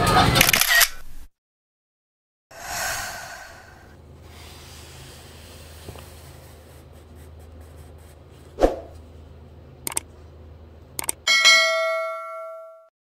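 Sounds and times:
faint background hum: 0:02.7 - 0:11.4
short clicks: 0:11.0 - 0:11.2
bright bell-like ding: 0:11.3 - 0:12.9.

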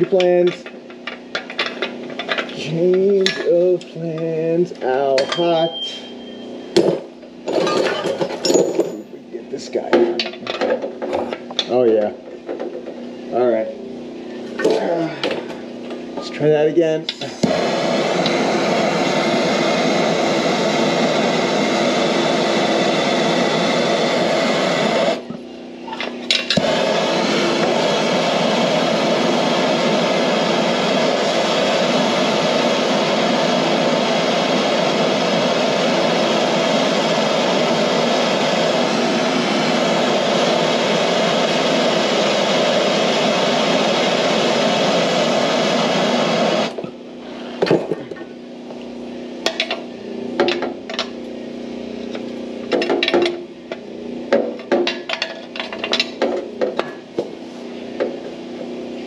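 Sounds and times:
gas torch flame hissing: 0:16.6 - 0:25.4, 0:26.2 - 0:48.0.

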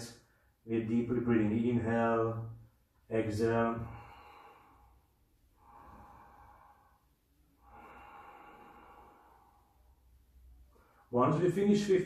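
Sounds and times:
man breathing slowly: 0:03.8 - 0:11.1.

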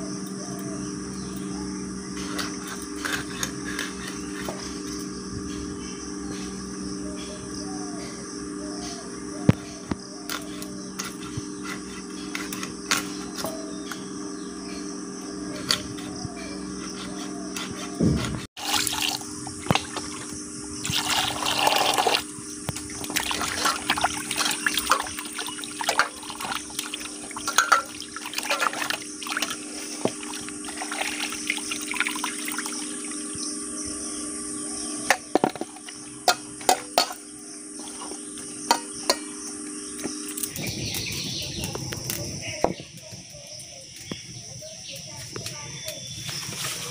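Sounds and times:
water splashing in bowl: 0:18.6 - 0:33.2.

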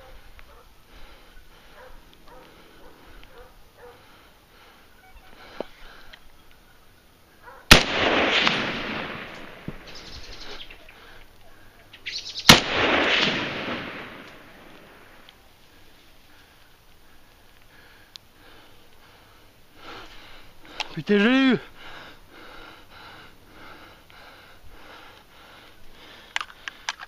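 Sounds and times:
gunshots with echo: 0:07.7 - 0:09.6, 0:12.5 - 0:14.8.

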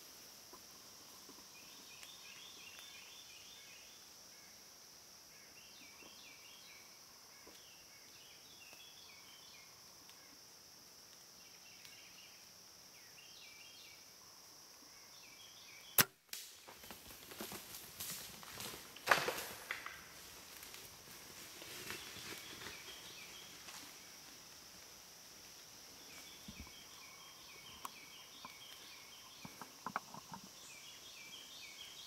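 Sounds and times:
insect drone: 0:00.0 - 0:32.0
bow snapping: 0:16.0 - 0:16.7
deer running through dry leaves: 0:16.7 - 0:24.0.

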